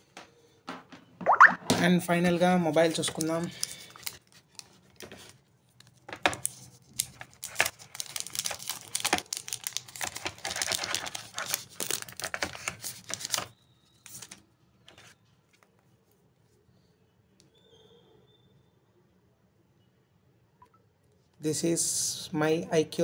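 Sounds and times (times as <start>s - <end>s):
packaging crinkling and rustling: 2.7s - 15.2s.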